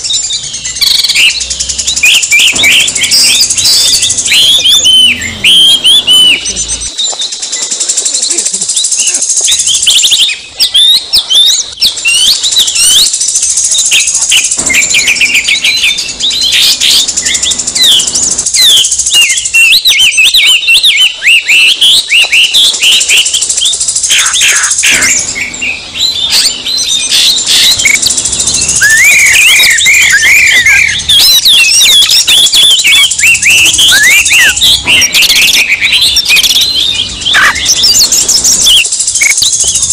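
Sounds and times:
birds singing whistles and chatter: 0.0 - 39.9.

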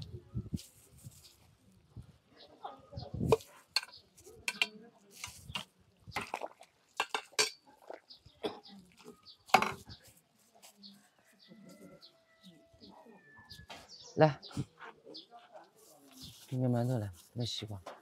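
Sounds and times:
metal utensils clinking and scraping: 3.3 - 5.7, 7.0 - 7.6.

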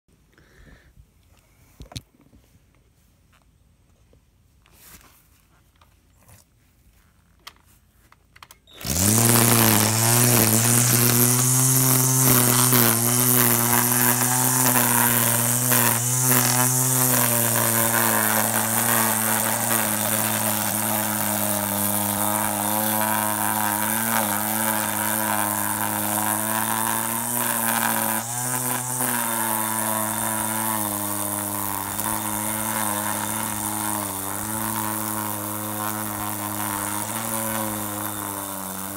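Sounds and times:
electric string trimmer cutting grass: 8.7 - 38.9.

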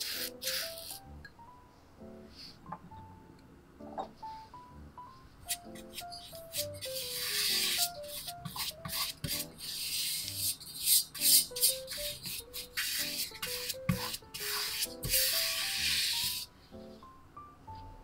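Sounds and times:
soft background music: 0.0 - 18.0
pastry brush swishing in metal pan: 5.5 - 16.5.

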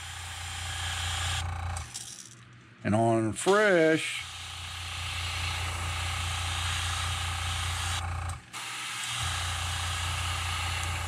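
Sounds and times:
airbrush spraying paint: 4.2 - 8.0.

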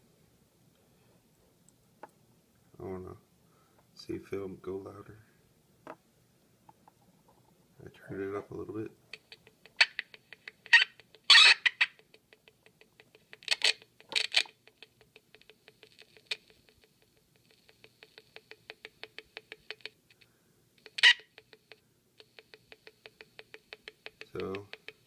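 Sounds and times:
speaker crackles: 6.6 - 25.0.

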